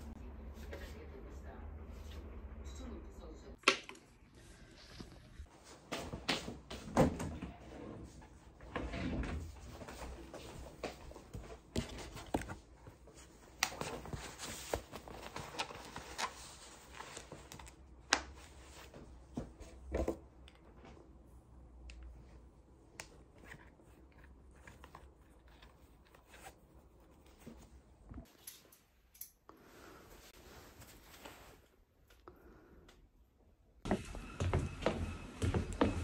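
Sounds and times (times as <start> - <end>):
rustling cloth and canvas: 30.0 - 31.8.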